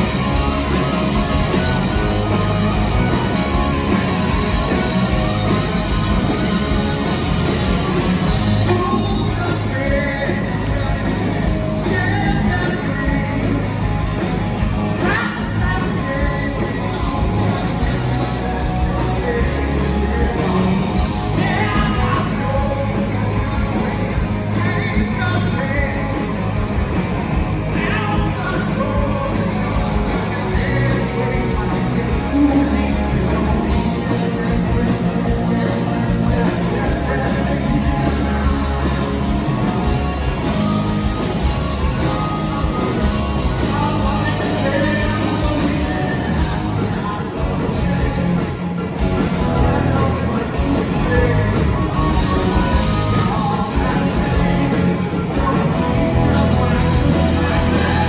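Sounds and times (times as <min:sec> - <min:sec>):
bass guitar: 0:00.0 - 0:58.0
drums: 0:00.0 - 0:58.0
electric guitars: 0:00.0 - 0:58.0
lead vocal singing: 0:08.2 - 0:13.7, 0:15.0 - 0:26.3, 0:27.7 - 0:48.6, 0:49.4 - 0:58.0.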